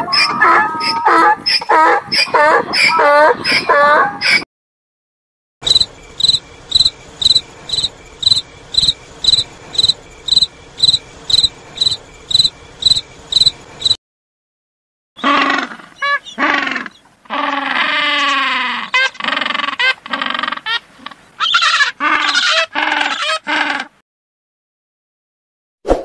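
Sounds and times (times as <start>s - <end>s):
cricket chirping: 5.6s - 14.0s.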